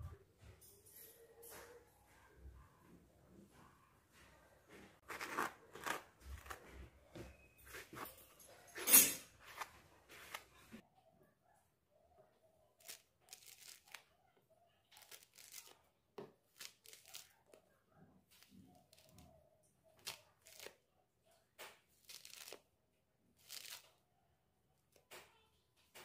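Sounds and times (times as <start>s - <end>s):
orange peel tearing: 20.0s - 20.8s.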